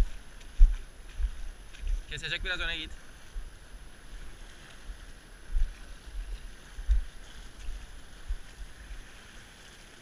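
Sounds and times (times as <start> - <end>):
wind buffeting microphone: 0.0 - 9.3
sea washing against rocks: 4.0 - 10.0.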